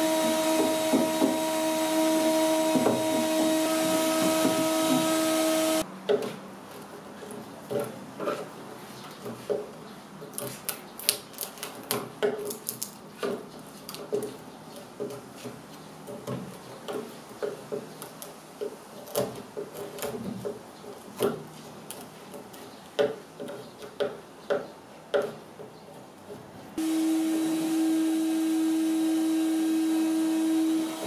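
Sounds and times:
chisel scraping wood: 0.0 - 5.8, 7.2 - 9.5.

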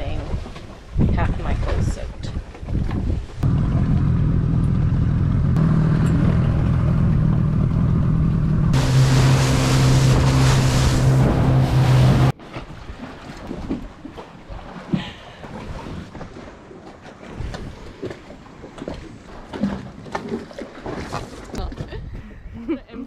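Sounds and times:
wind on microphone: 0.0 - 4.0
outboard motor running: 3.4 - 12.4
spray and rushing water: 8.7 - 12.3.

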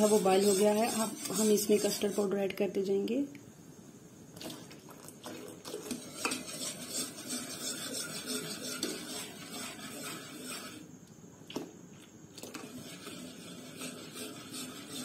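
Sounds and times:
whisk clinking in metal pot: 0.0 - 2.2, 5.7 - 10.8.

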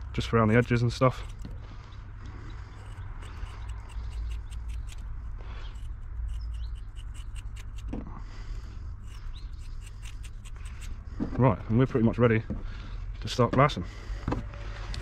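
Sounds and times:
low steady rumble: 0.0 - 15.0
scissors snipping: 0.4 - 1.5, 2.8 - 8.0, 9.0 - 10.9.

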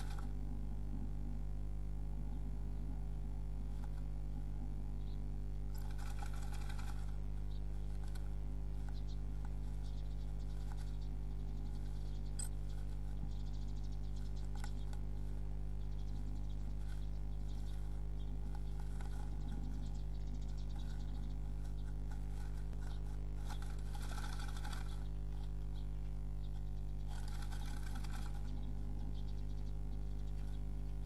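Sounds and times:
bird scratching nesting material: 0.0 - 0.4, 5.7 - 25.6, 26.4 - 29.0
rustle in nest box: 0.0 - 0.4, 5.7 - 15.5, 16.7 - 19.9, 20.7 - 25.6, 27.0 - 28.8
low electrical hum: 0.0 - 31.0.

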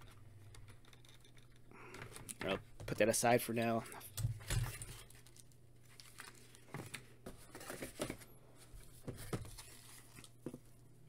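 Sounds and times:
cardboard and paper rustling: 4.6 - 10.8.

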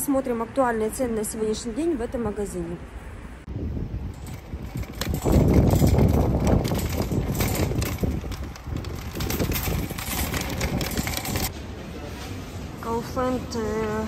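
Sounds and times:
metal basket rattling: 4.1 - 11.5
shopping cart wheels rumbling: 4.1 - 11.8.

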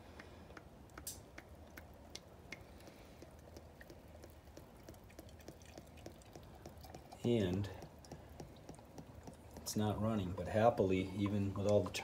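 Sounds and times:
small ticks: 0.1 - 9.7
fluid trickling into reservoir: 2.7 - 9.9.

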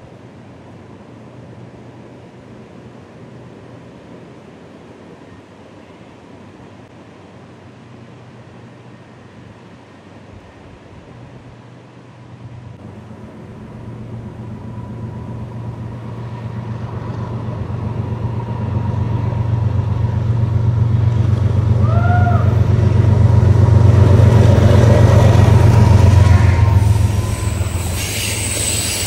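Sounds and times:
diesel locomotive engine drone: 0.0 - 29.0
high rising-and-falling call: 25.4 - 29.0.

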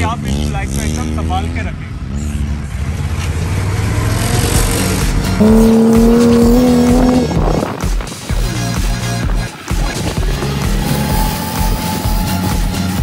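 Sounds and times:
dune buggy engine running: 2.2 - 13.0
background music held note: 5.4 - 7.5.

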